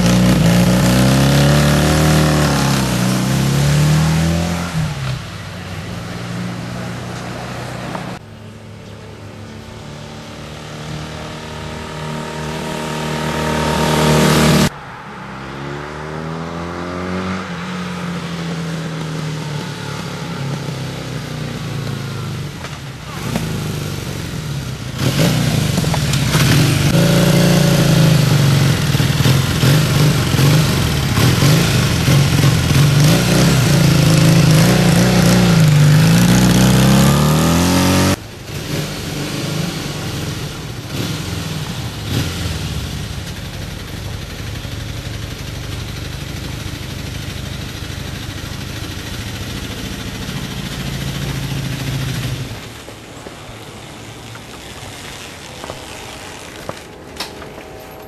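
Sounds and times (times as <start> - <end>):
motorcycle engine revving: 0.0 - 53.1.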